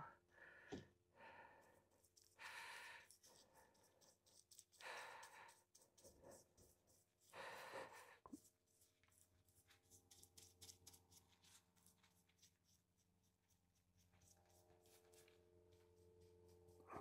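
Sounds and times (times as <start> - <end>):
faint soft breaths: 0.0 - 8.8, 16.2 - 17.0.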